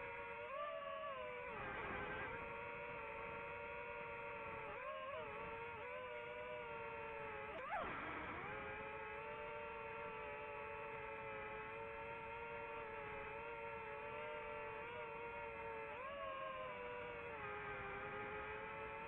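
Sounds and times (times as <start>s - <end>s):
drone propellers whining: 0.0s - 19.0s.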